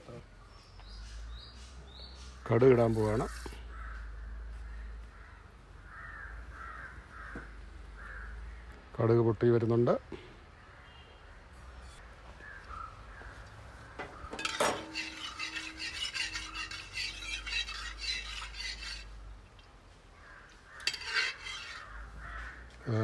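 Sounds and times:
spatula scraping metal pan: 14.2s - 19.2s, 20.7s - 22.2s.

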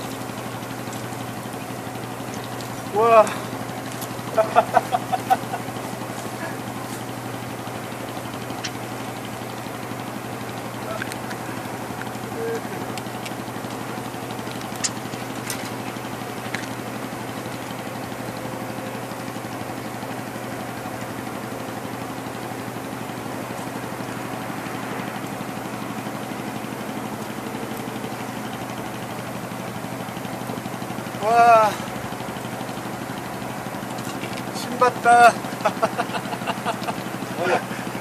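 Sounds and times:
engine humming: 0.0s - 38.0s
short clicks: 14.4s - 15.8s.

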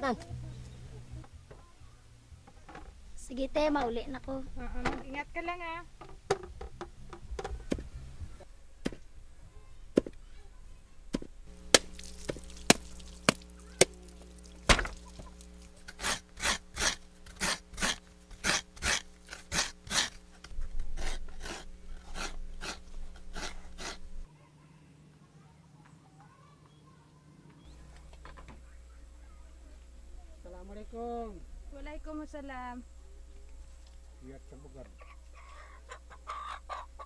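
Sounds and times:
steady low hum: 0.0s - 25.9s, 26.9s - 37.0s
hard strikes on wood: 14.6s - 15.0s.

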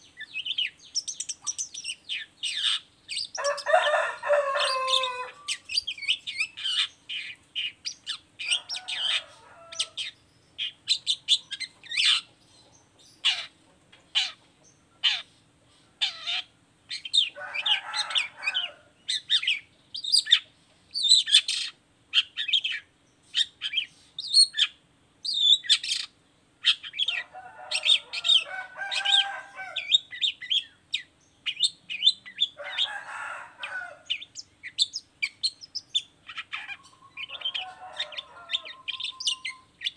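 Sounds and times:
bird singing high chirps and trills: 0.0s - 39.9s
bird rasping chatter: 0.4s - 12.4s, 13.0s - 15.4s, 16.0s - 24.7s, 31.5s - 39.9s.

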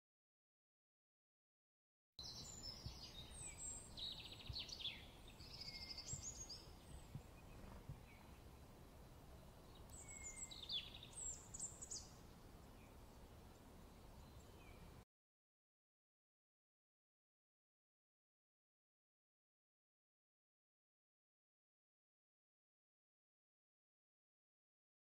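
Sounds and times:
outdoor background hiss: 2.2s - 15.0s
songbirds chirping: 2.2s - 15.0s.

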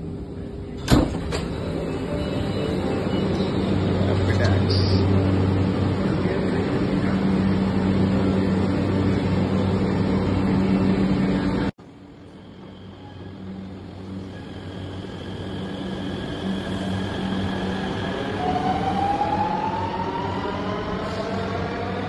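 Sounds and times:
faint high train whine: 0.0s - 22.0s.

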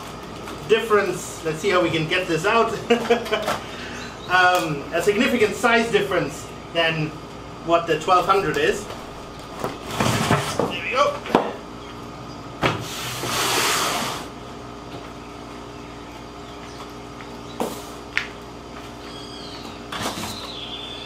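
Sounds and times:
steady low hum: 0.0s - 21.0s
box scraping across table: 9.8s - 10.6s.

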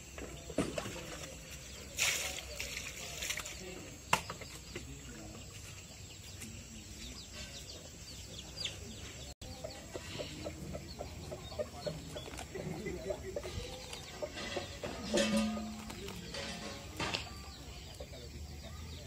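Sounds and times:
chickens clucking: 0.0s - 19.0s
small birds chirping: 0.0s - 19.0s.

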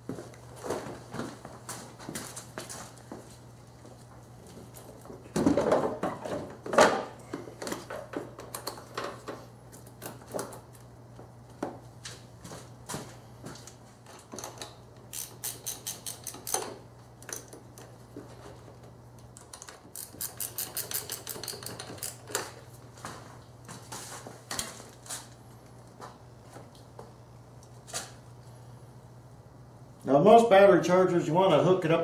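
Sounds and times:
ratchet wrench clicking: 15.1s - 16.7s, 19.9s - 22.2s.

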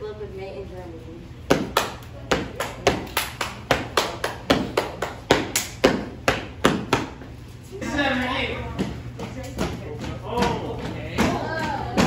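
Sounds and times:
children clapping rhythmically: 1.5s - 7.1s.

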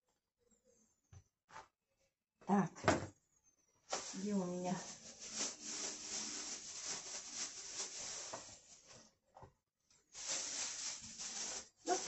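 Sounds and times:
plastic film crinkling: 3.9s - 9.1s, 10.1s - 12.0s.

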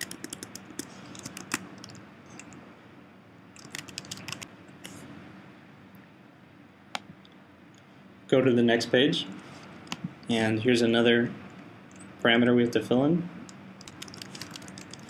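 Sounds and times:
computer keyboard typing: 0.0s - 2.6s, 3.6s - 4.5s, 13.8s - 15.0s.

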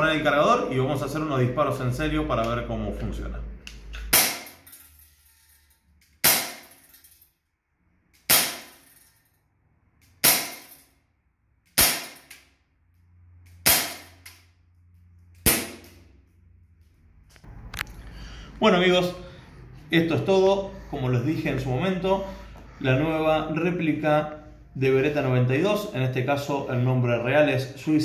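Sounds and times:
air pistol shots: 4.0s - 4.6s, 6.2s - 6.7s, 8.2s - 8.8s, 10.2s - 10.8s, 11.7s - 12.4s, 13.5s - 14.3s, 15.4s - 16.1s.

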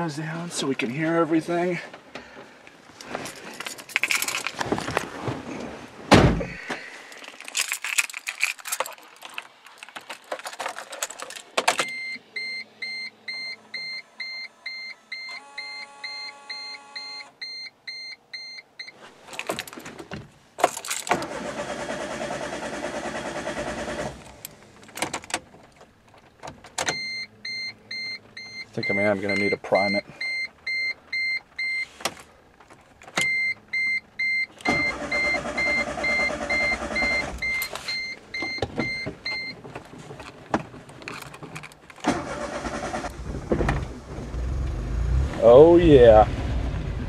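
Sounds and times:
keys jangling: 3.2s - 5.0s, 7.1s - 11.9s, 19.3s - 20.0s, 20.6s - 21.2s, 41.0s - 42.1s
engine starter cranking: 20.7s - 25.3s, 34.6s - 37.8s, 41.1s - 44.4s.

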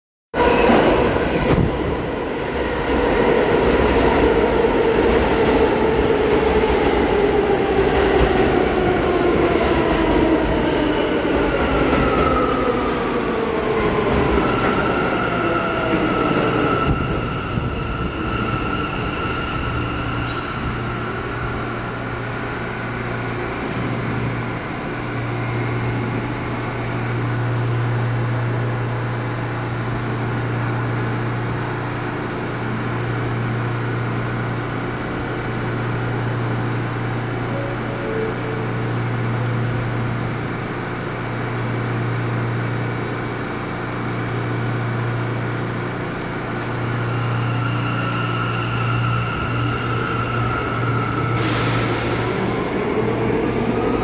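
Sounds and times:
subway train motor whine: 0.5s - 54.0s
steady high tone: 37.4s - 39.5s.

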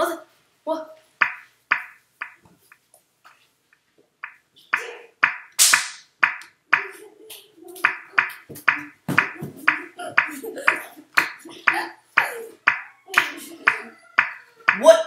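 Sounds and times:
child making percussive clicks: 1.2s - 2.4s, 4.2s - 14.8s.

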